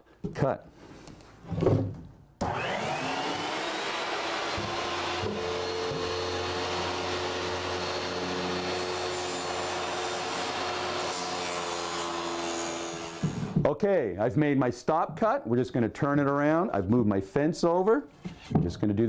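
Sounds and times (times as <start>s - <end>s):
table saw motor running: 2.4s - 13.6s.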